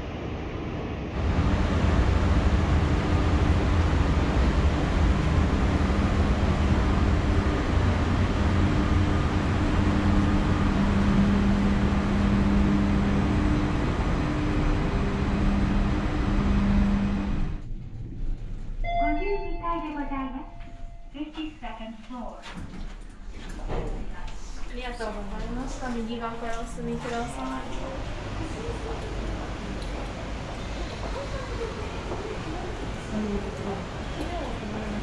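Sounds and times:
ventilation machinery: 0.0s - 35.0s
low hum: 0.1s - 35.0s.

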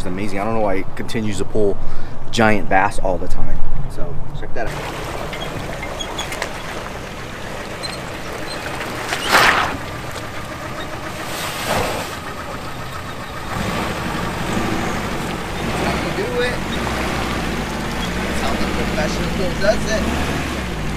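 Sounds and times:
car engine running: 4.7s - 20.9s
brief whooshing noises: 9.2s - 9.9s.

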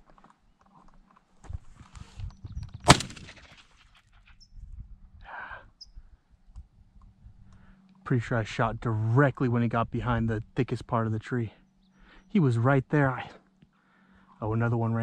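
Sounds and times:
shotgun shot: 2.8s - 3.7s.

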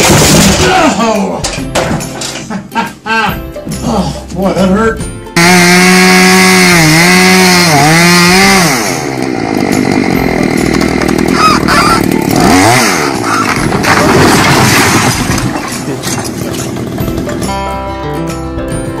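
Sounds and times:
wall collapsing rumble and clatter: 0.0s - 2.4s, 13.4s - 17.3s
chainsaw cutting: 5.4s - 17.5s.

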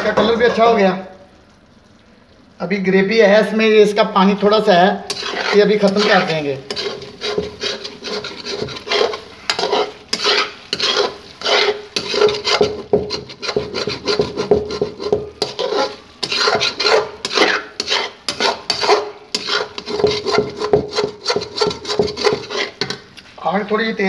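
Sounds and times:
metal spoon scraping pan: 0.0s - 0.9s, 5.0s - 23.2s.

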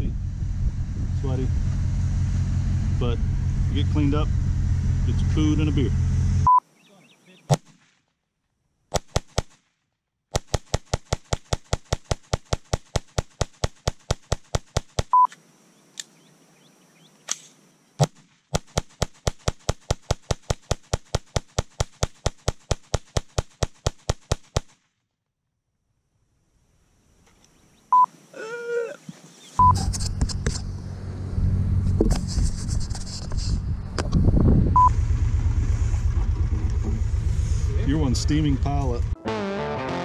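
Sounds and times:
camera shutter rapid bursts: 8.9s - 9.6s, 10.4s - 15.1s, 18.0s - 24.7s
short high beep: 29.6s - 29.9s.

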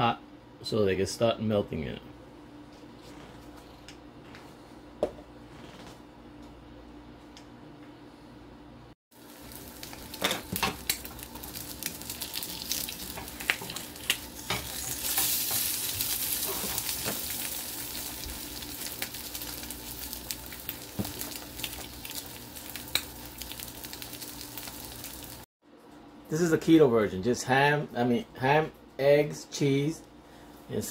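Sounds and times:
eggs sizzling in a skillet: 9.2s - 25.5s.

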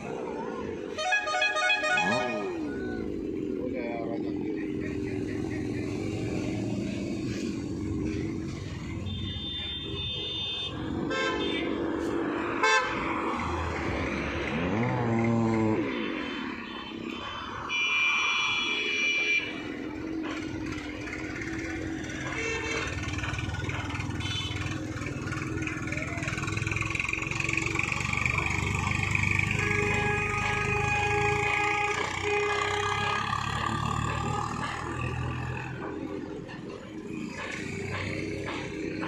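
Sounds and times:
passing vehicles rumbling: 0.0s - 39.0s
vehicle horns honking: 0.9s - 2.8s, 7.2s - 11.8s, 12.6s - 13.1s, 15.8s - 19.9s, 21.8s - 24.9s, 29.4s - 34.7s
passing engine rising in pitch: 12.0s - 16.6s.

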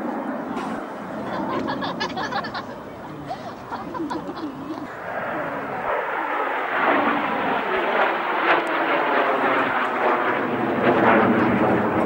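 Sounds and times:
jet engines rushing overhead: 0.0s - 12.0s.

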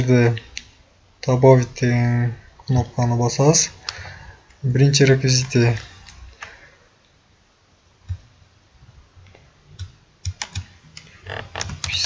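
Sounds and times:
computer keyboard keystrokes: 9.8s - 12.0s.

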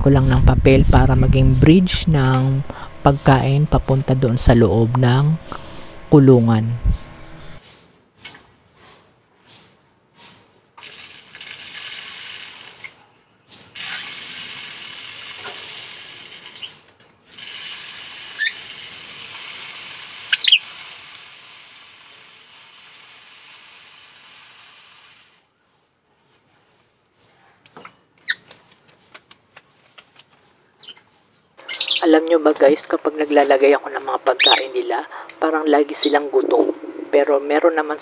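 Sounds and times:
bird chirps: 7.1s - 7.6s, 20.3s - 20.6s, 30.7s - 32.2s, 34.3s - 34.8s, 35.9s - 36.7s
bird feed pouring down a chute: 10.8s - 12.9s, 13.8s - 25.4s.

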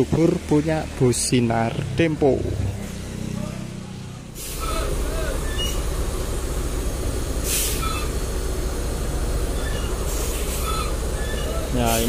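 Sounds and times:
bus diesel engine rumbling: 0.0s - 12.0s
air brakes hissing: 4.3s - 12.0s.

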